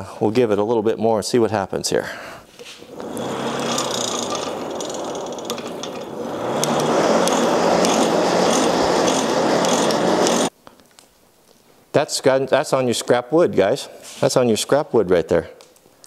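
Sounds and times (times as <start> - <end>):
hand-cranked blower gears whirring: 2.8 - 10.5.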